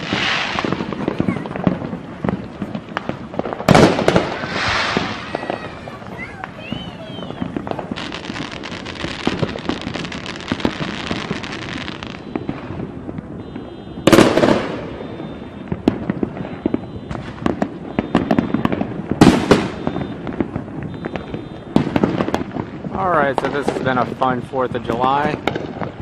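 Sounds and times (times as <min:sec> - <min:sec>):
fireworks crackling: 0:00.0 - 0:26.0
fireworks sharp pops: 0:00.0 - 0:26.0
loud firework bursts: 0:00.0 - 0:26.0.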